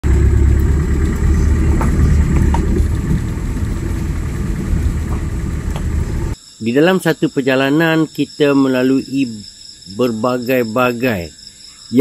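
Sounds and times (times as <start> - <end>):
vehicle engine and road rumble: 0.0 - 6.4.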